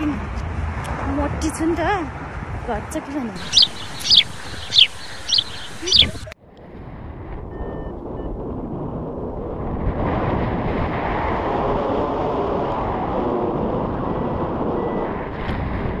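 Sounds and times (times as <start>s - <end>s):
steady rushing noise: 3.4s - 6.4s.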